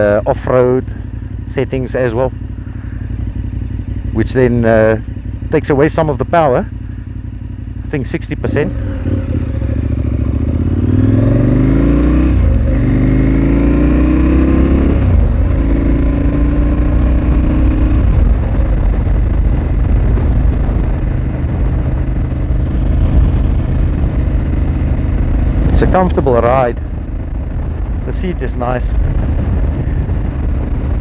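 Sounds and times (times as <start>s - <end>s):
motorcycle engine accelerating hard: 0.0s - 31.0s
wind noise: 8.7s - 31.0s.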